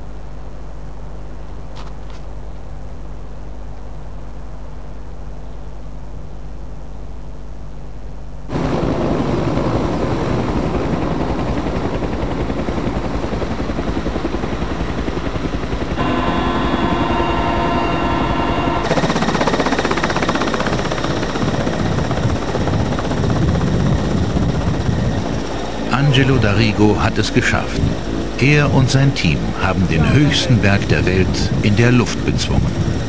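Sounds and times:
whine of steady tones: 0:00.0 - 0:33.0
helicopter rotor and engine: 0:08.5 - 0:33.0.

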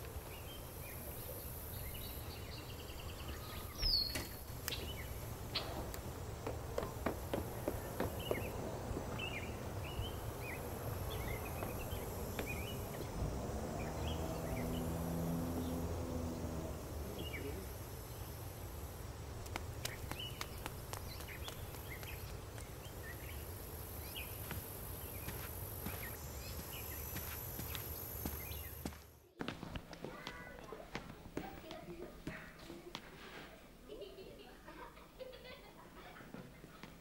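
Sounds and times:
small birds chirping: 0:00.0 - 0:29.4
low steady rumble: 0:04.4 - 0:28.8
low hum: 0:04.4 - 0:28.9.

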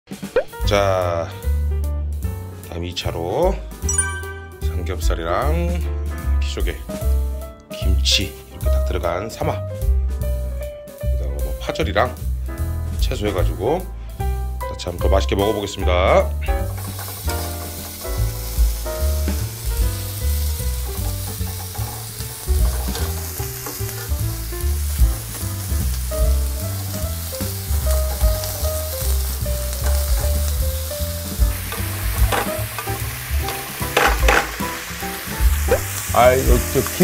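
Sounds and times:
pork sizzling in a hot pan: 0:10.2 - 0:37.0
metal tongs scraping a pan: 0:16.4 - 0:18.6, 0:19.2 - 0:24.3, 0:27.8 - 0:35.3.

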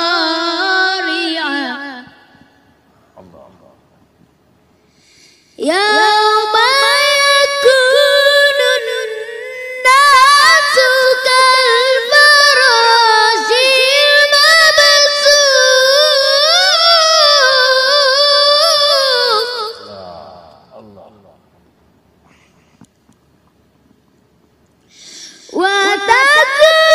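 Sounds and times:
boy reciting melodically: 0:00.0 - 0:02.5, 0:05.6 - 0:21.1, 0:25.0 - 0:26.9.

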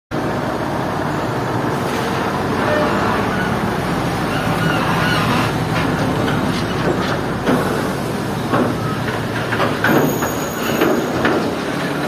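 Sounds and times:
diesel truck engine running: 0:00.1 - 0:12.0
trailer rattling and clanking: 0:00.2 - 0:12.0.

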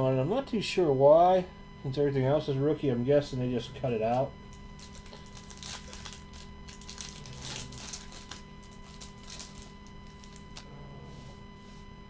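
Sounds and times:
trading cards rustling and scraping: 0:04.8 - 0:10.7.

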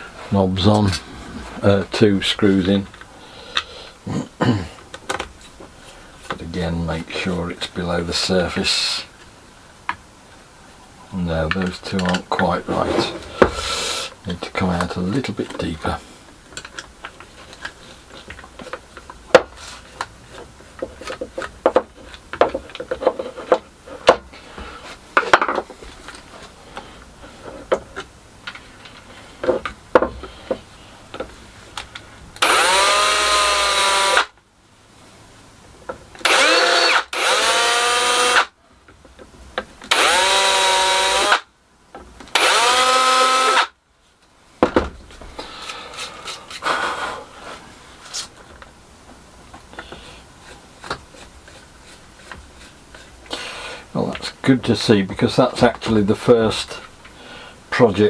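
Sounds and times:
clicks and knocks of hand work: 0:16.4 - 0:24.3
electric drill whining: 0:32.4 - 0:34.3, 0:36.2 - 0:38.5, 0:39.9 - 0:41.5, 0:42.3 - 0:43.7.

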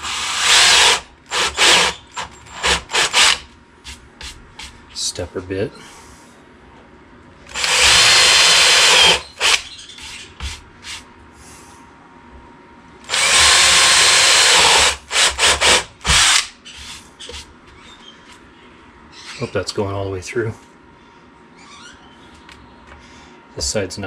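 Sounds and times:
power drill boring through wood: 0:00.0 - 0:03.4, 0:07.5 - 0:09.6, 0:13.1 - 0:16.5.

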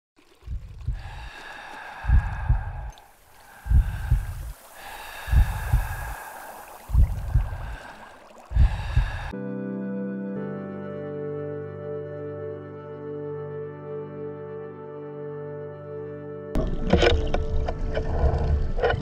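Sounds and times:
heartbeat thumps: 0:00.4 - 0:01.2, 0:02.0 - 0:04.6, 0:05.2 - 0:09.3.

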